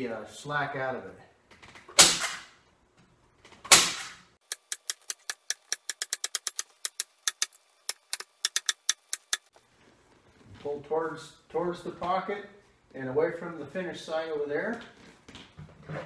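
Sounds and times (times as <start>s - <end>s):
fast sharp clicks: 4.4s - 9.5s.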